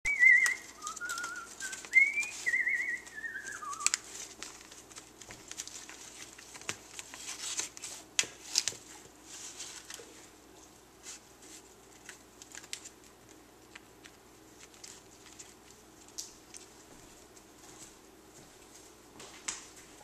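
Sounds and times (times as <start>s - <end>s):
parrot whistling: 0.0s - 4.0s.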